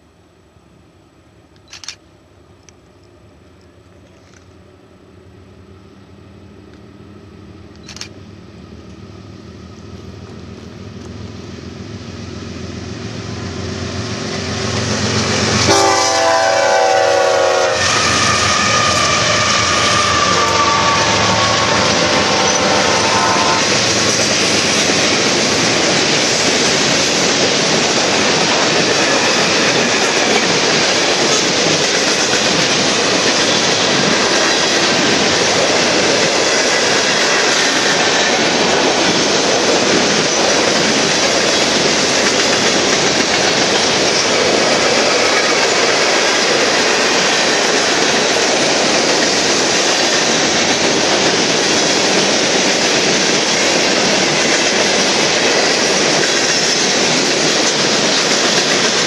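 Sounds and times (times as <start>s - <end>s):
diesel locomotives approaching: 0.0s - 59.0s
train horn blast: 15.5s - 23.8s.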